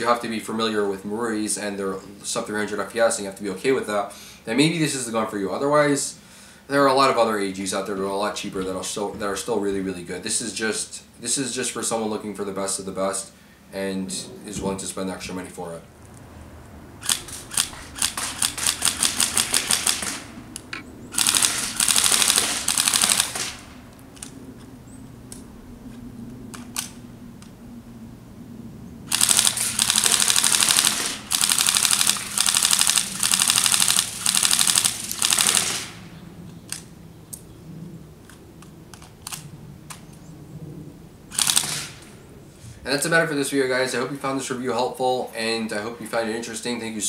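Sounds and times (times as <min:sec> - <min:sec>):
airsoft rifle firing: 0:17.0 - 0:23.8, 0:29.1 - 0:36.2, 0:41.3 - 0:42.1.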